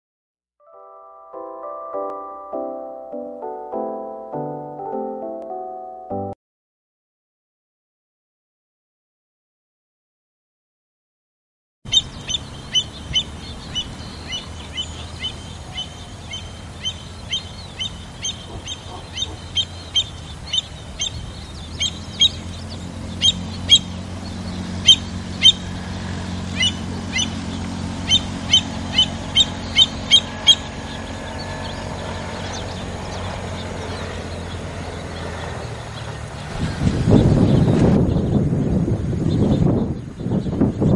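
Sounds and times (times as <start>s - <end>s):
shorebirds calling: 11.9s - 40.9s
steady low rumble: 11.9s - 40.9s.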